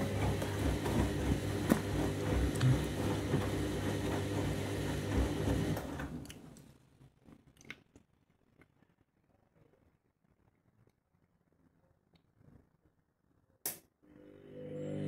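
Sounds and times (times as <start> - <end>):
washing machine motor hum: 0.0 - 6.2, 14.1 - 15.0.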